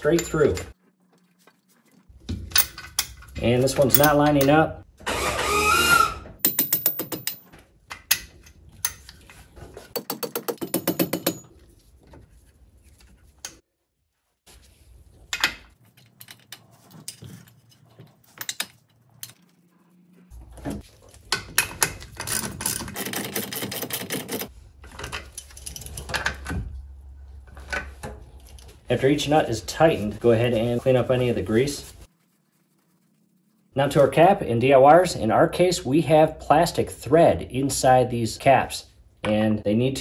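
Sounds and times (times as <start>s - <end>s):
metal parts clicking and rattling: 2.4s - 4.6s, 6.4s - 9.4s, 15.3s - 19.4s, 21.1s - 26.6s.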